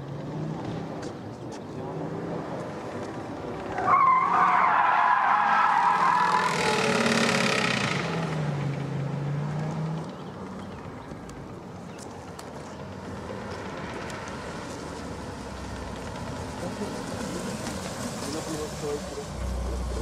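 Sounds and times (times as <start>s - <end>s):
tyres squealing: 3.7s - 7.4s.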